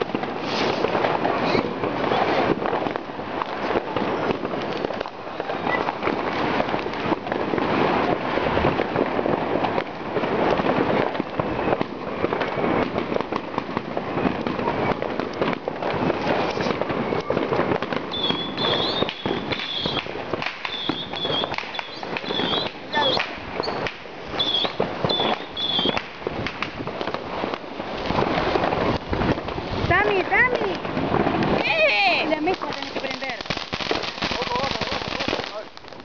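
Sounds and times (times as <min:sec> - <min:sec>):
fireworks and firecrackers banging: 0:00.0 - 0:36.0
short high firework whistles: 0:00.4 - 0:02.3, 0:18.1 - 0:26.1.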